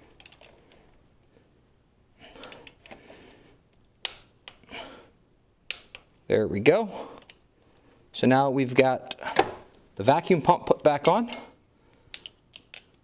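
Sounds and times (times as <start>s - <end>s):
faint breaths: 0.0s - 3.7s, 6.8s - 8.2s, 11.3s - 12.4s.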